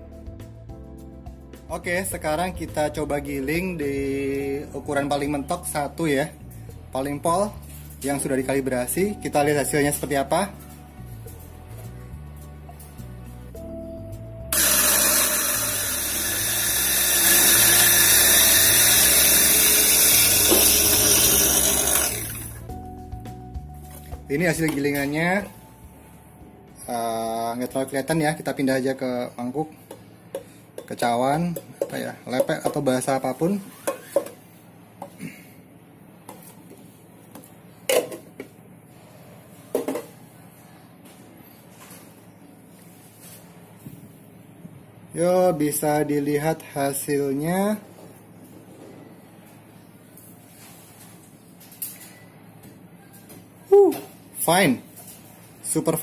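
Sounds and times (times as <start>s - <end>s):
coffee grinder whirring: 14.5s - 22.7s.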